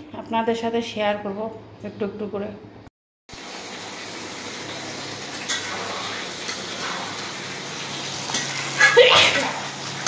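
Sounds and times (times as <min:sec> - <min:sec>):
hot oil sizzling in a wok: 0:03.3 - 0:10.0.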